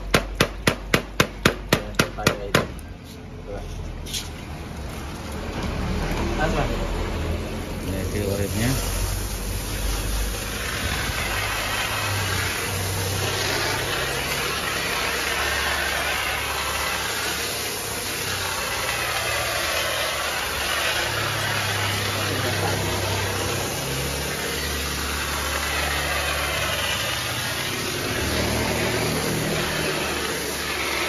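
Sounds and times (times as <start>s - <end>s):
water gushing from hose: 0.0s - 0.6s, 4.5s - 31.0s
water splashing on tiled floor: 7.2s - 31.0s.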